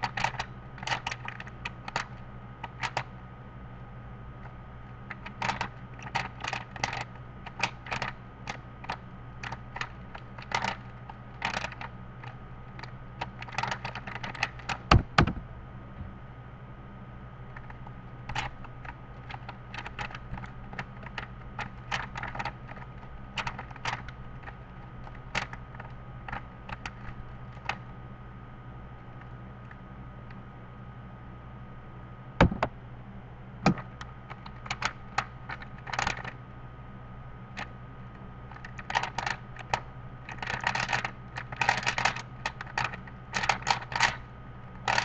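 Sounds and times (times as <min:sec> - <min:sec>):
louder knocks: 0:14.9 - 0:16.2, 0:32.4 - 0:32.7
puzzle cube clicking: 0:40.3 - 0:44.2.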